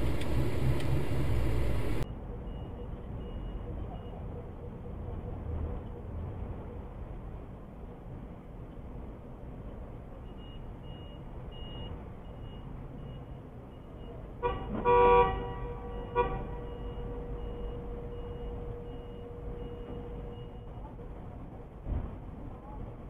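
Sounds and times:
car horn blaring: 14.4 - 20.6
faint high beeping: 16.6 - 20.8.

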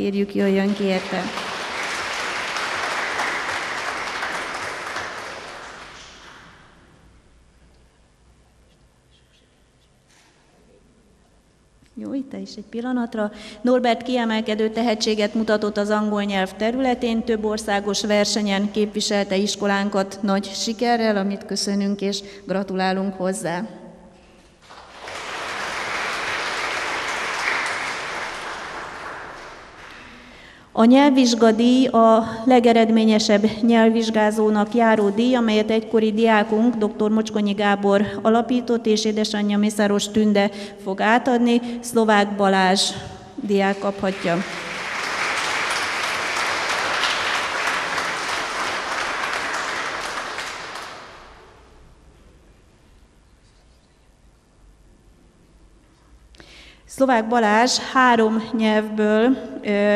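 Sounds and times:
audience applauding: 0.7 - 6.7, 24.6 - 30.3, 44.1 - 51.5.

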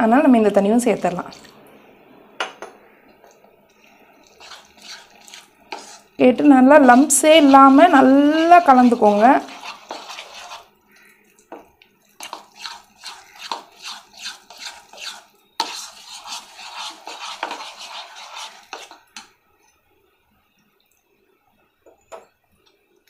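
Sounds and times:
fork stirring batter in bowl: 3.7 - 11.4, 12.0 - 19.3.

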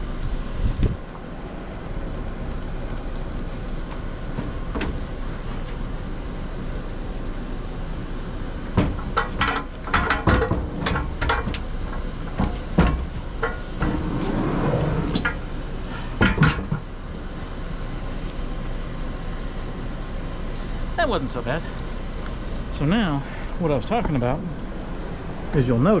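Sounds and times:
metal clanks and knocks: 8.7 - 14.4, 15.0 - 15.4, 16.1 - 16.9
metal scraping slide: 13.5 - 15.4.

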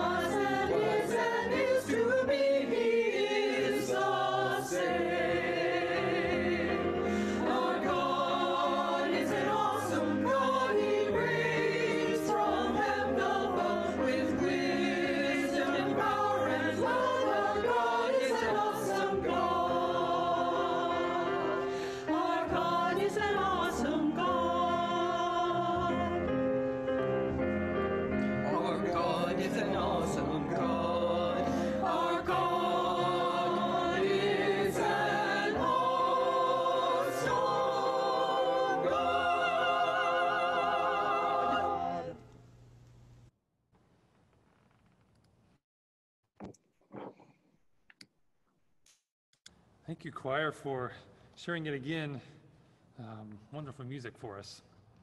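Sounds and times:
mixed choir singing: 0.0 - 26.5, 28.3 - 42.3
piano accompaniment: 0.0 - 42.2.

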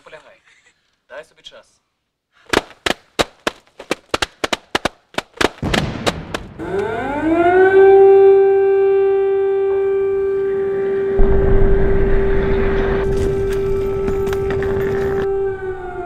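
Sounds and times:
gunshots: 5.4 - 7.0
air-raid siren wailing: 6.6 - 16.0
low rumble: 11.0 - 16.0.

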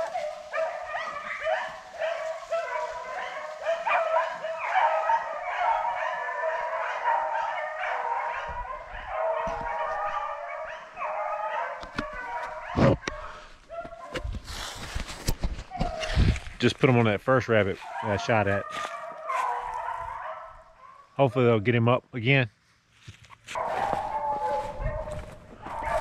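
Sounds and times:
hunting dogs baying and yelping: 0.0 - 16.5, 17.4 - 21.6, 23.5 - 26.0.

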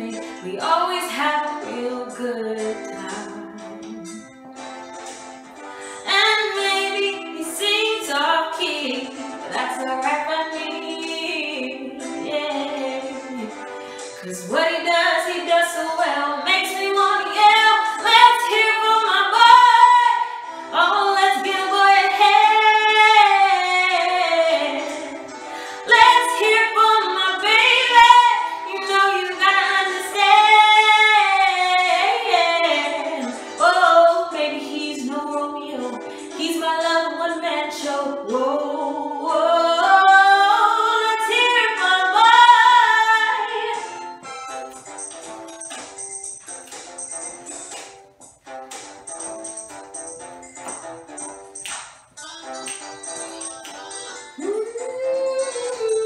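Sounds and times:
woman singing unaccompanied: 0.0 - 4.2, 6.1 - 13.5, 14.2 - 25.2, 25.8 - 43.9, 54.4 - 56.0.

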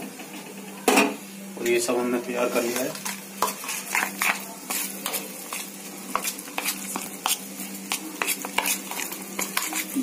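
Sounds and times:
spoon scraping metal pot: 3.0 - 10.0.

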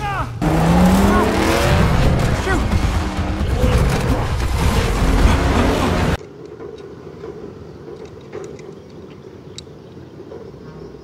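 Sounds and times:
race car engines: 0.0 - 6.2
tyres on dirt: 0.0 - 9.8.

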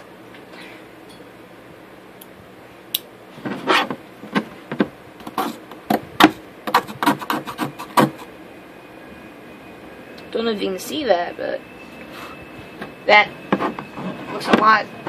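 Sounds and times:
knife scraping circuit board: 6.7 - 8.3.

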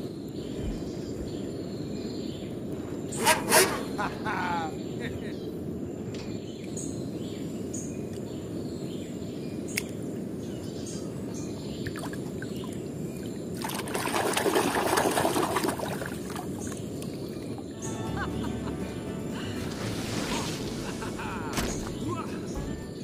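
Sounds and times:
water splashing in plastic tub: 13.6 - 16.8
steady low rush: 17.7 - 23.0.

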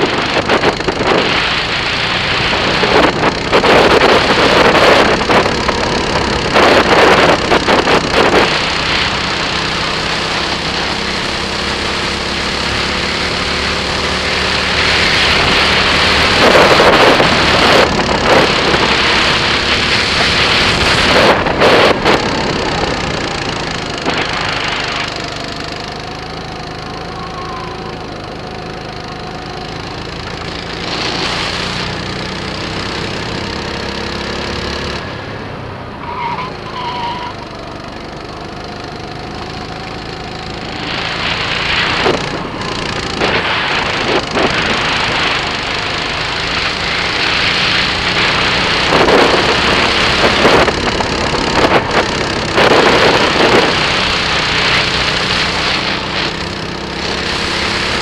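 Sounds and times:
rushing noise: 0.0 - 37.6, 39.2 - 58.0
kart engine revving: 0.0 - 58.0.

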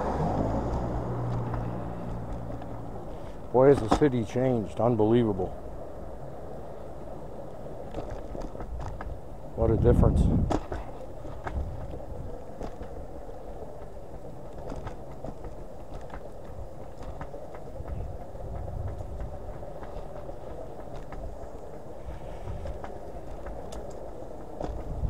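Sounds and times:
electric scooter motor whine: 0.0 - 3.4, 10.9 - 25.0
road and wind rumble: 0.0 - 25.0
light clicks and rattles: 13.6 - 25.0.

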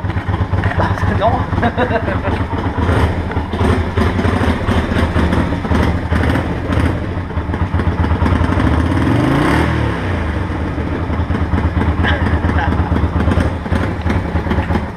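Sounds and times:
motorcycle engine idling: 0.0 - 14.9.

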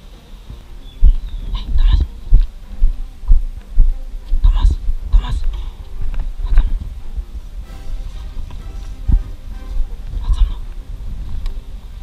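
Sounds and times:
running footsteps thudding: 0.5 - 12.0.

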